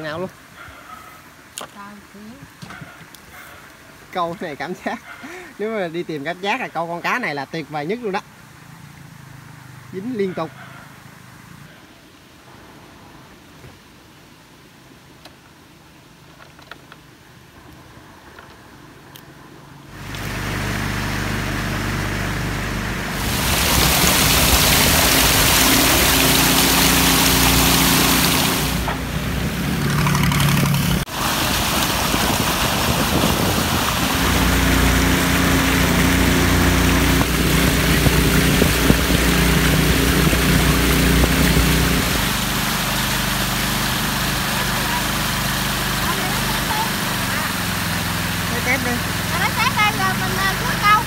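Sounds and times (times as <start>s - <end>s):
rushing wind or water: 0.0s - 16.4s, 17.0s - 51.0s
small engine running: 19.9s - 51.0s.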